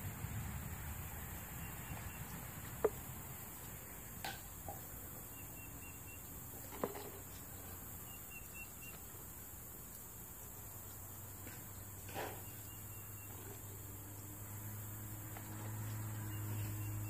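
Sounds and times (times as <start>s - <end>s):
faint high chirps: 7.3s - 9.2s, 12.3s - 13.7s.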